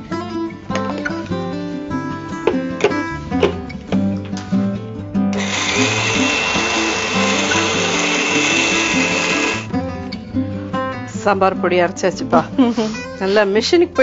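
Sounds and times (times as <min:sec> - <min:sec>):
electric mixer grinder whining: 0:05.4 - 0:09.7.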